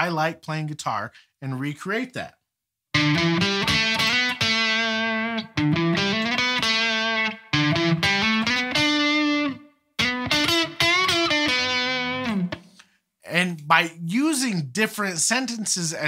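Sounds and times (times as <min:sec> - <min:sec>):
electric guitar melodic phrases: 0:02.9 - 0:12.9.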